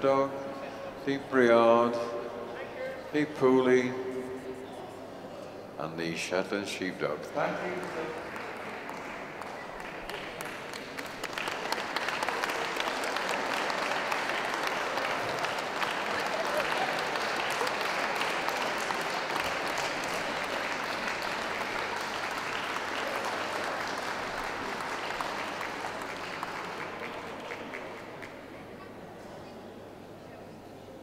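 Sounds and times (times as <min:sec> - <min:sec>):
audience applause: 0:07.4 - 0:28.6.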